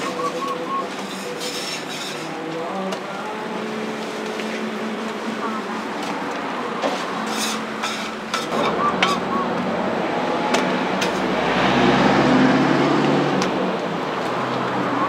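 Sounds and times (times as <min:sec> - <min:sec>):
traffic rumble: 0:00.0 - 0:15.0
utensils tapping metal griddle: 0:06.8 - 0:09.2.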